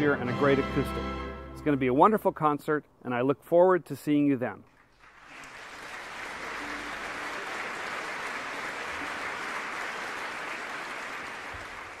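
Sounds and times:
audience applause: 4.8s - 12.0s.

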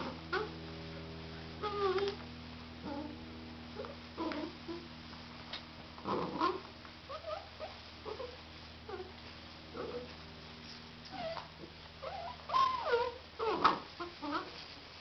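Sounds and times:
steady low hum: 0.0s - 15.0s
puppies whining and yipping: 6.4s - 9.1s, 11.1s - 14.5s.

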